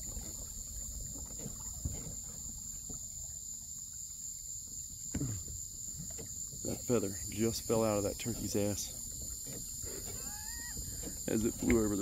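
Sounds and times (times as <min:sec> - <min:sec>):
high-pitched insect drone: 0:08.5 - 0:11.5.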